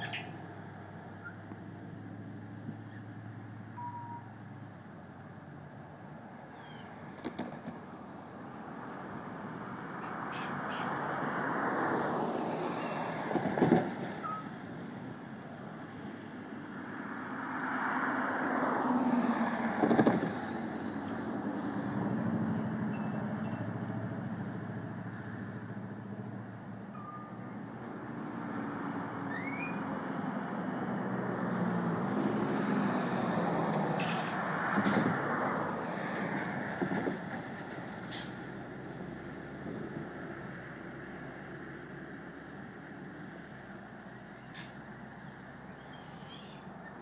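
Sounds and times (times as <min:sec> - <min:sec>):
bird chirps: 0:00.0 - 0:00.4, 0:02.1 - 0:03.1, 0:03.8 - 0:04.3, 0:06.5 - 0:06.9, 0:29.3 - 0:29.8, 0:44.2 - 0:47.0
vehicles passing: 0:00.0 - 0:47.0.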